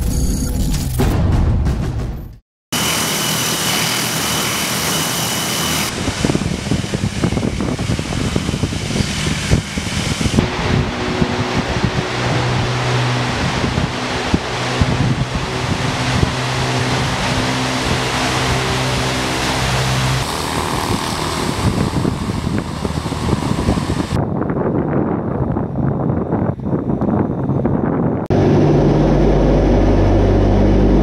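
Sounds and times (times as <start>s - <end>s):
hiss with high whine: 2.8s - 10.7s
propeller engine roar and drone: 2.8s - 31.0s.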